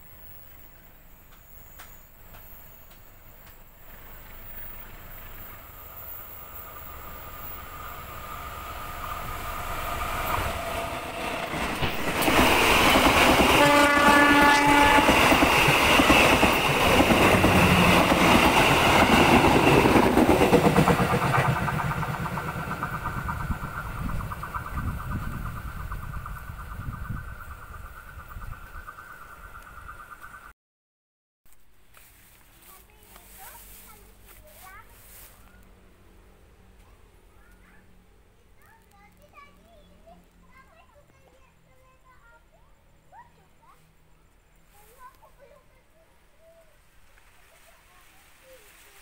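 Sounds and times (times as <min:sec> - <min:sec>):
passenger train passing: 0:00.0 - 0:30.2, 0:33.2 - 0:38.6
coaches clattering over rails: 0:09.6 - 0:26.2
train horn blast: 0:13.4 - 0:15.6.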